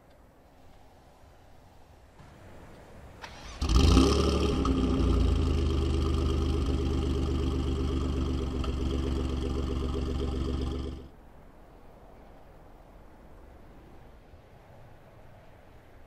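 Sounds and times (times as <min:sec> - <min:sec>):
car engine starting and idling: 0:03.1 - 0:11.1.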